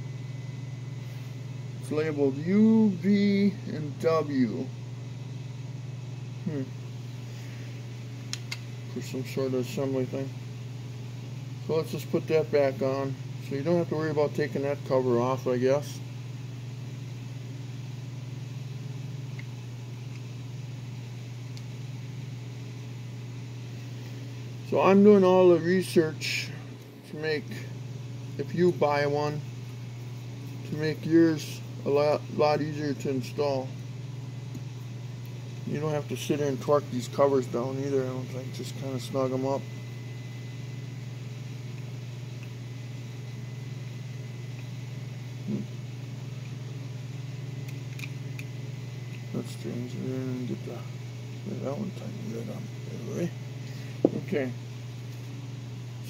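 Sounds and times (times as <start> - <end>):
low machine hum: 0.0 - 56.0
faint small clicks: 8.3 - 8.7.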